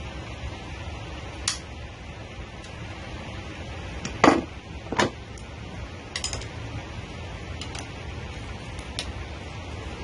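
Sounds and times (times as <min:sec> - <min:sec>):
low hum: 0:00.0 - 0:10.0.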